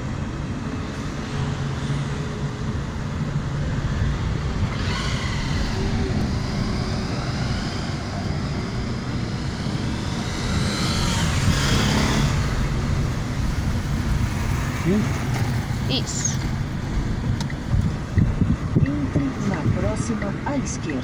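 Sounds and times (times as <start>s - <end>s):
car engine and tyre rumble: 0.0s - 21.0s
passing traffic: 0.0s - 21.0s.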